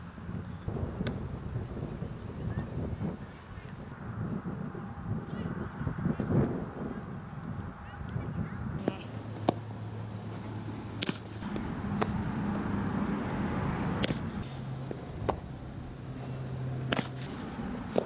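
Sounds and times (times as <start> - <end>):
ball popping into leather glove: 8.8 - 9.8, 11.0 - 12.7, 14.0 - 15.5, 16.8 - 18.0
bat hitting softball: 8.8 - 18.0
steady low hum: 8.8 - 18.0.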